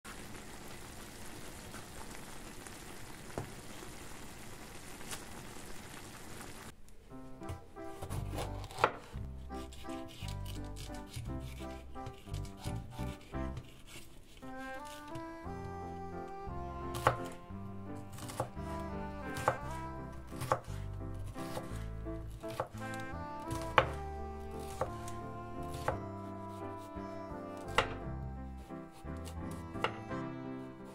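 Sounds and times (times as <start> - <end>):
food sizzling in a frying pan: 0.1 - 6.7
knife slicing pepper: 7.5 - 15.3, 16.9 - 17.4, 18.0 - 26.9, 27.6 - 28.0.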